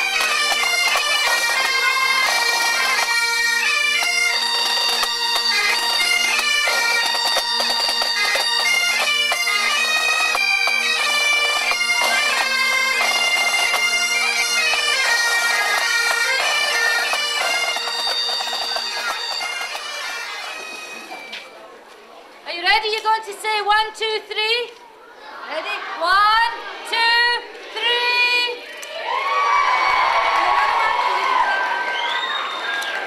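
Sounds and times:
bagpipes playing marching tune: 0:00.0 - 0:21.5.

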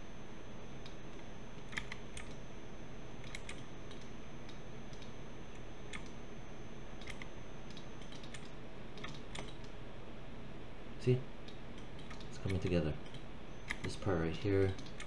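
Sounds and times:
low background hum: 0:00.0 - 0:15.0
mouse and keyboard clicks: 0:03.2 - 0:05.1, 0:07.0 - 0:09.7, 0:11.5 - 0:13.9.

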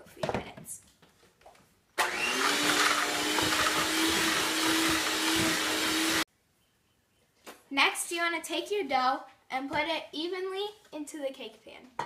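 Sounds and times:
electric mixer in dough: 0:02.0 - 0:06.2.

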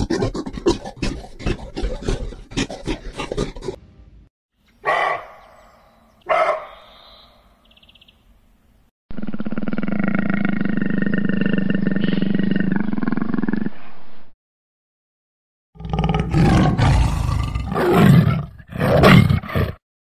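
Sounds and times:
tiger roaring: 0:00.0 - 0:03.8, 0:15.8 - 0:19.8.

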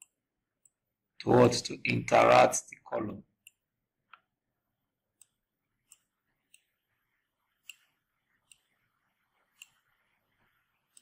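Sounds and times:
faint computer mouse clicks: 0:07.6 - 0:08.8.

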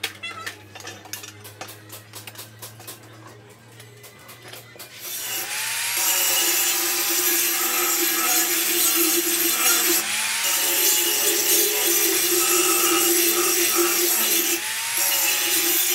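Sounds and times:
angle grinder grinding metal: 0:04.9 - 0:15.9.

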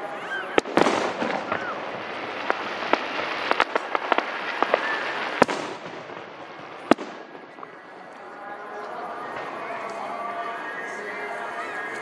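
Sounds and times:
fireworks crackling: 0:00.0 - 0:12.0
loud firework bang: 0:00.5 - 0:07.8.

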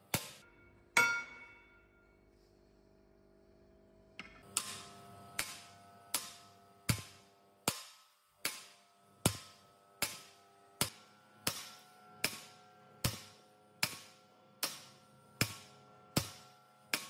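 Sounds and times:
hammer striking metal: 0:00.0 - 0:02.2, 0:05.4 - 0:17.0.

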